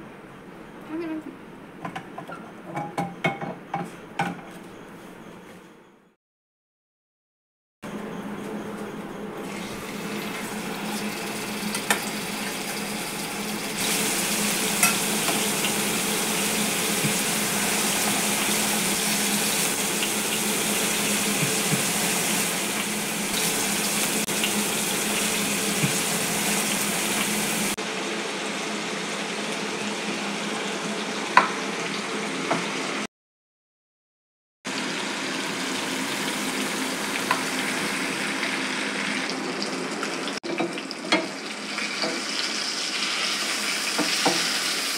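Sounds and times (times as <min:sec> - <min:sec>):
fish sizzling in hot oil: 0:09.5 - 0:27.8, 0:34.7 - 0:44.9.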